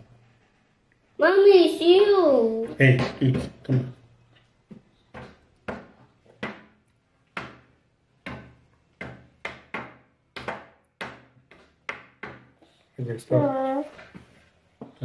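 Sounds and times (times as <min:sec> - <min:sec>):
sharp knocks on hard surface: 0:02.9 - 0:03.9, 0:04.7 - 0:12.6.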